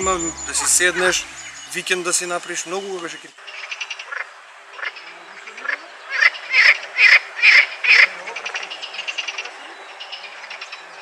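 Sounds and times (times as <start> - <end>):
frogs croaking: 0.0 - 11.0.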